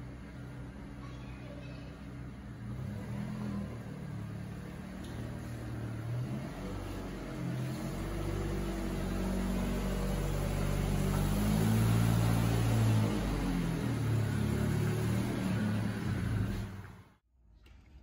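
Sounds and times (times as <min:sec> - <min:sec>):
car engine running at low speed: 0:02.0 - 0:17.2.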